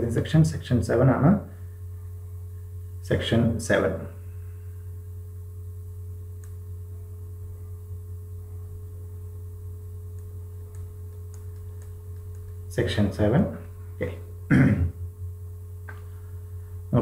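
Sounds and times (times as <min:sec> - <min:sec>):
low electrical hum: 0:00.0 - 0:17.0
faint clicks: 0:10.1 - 0:12.6.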